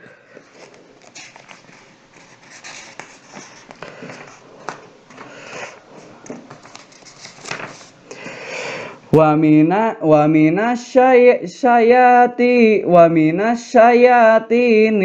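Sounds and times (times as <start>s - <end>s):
soft rustles: 0.3s - 8.0s.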